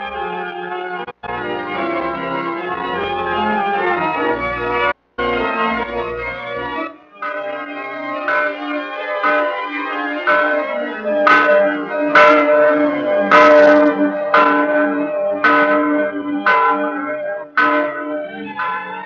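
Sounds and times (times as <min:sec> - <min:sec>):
organ music with sustained chords: 0:00.0 - 0:19.0
bell striking: 0:07.2 - 0:19.0.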